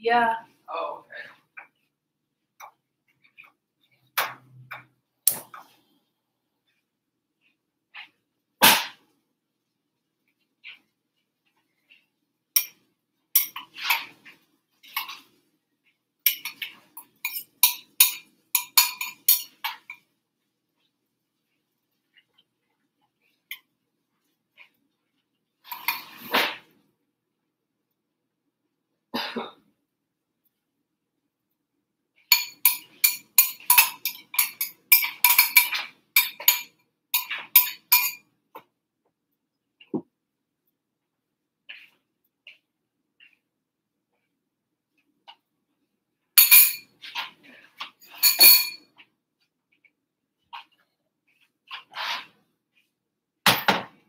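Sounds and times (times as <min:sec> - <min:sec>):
utensil clinking glass bowl: 0:16.3 - 0:20.0, 0:32.3 - 0:38.2, 0:46.4 - 0:46.9, 0:48.0 - 0:48.8.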